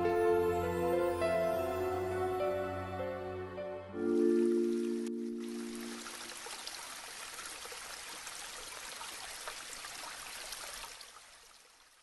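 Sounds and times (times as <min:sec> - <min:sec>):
stream trickling with splashes: 0:04.0 - 0:12.0.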